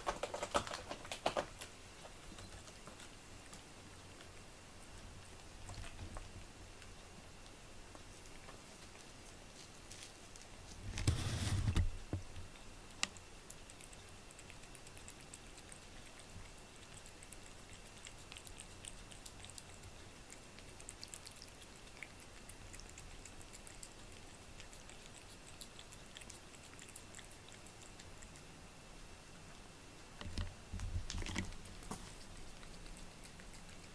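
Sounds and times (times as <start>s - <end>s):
cat licking: 12.4s - 28.6s, 31.0s - 33.9s.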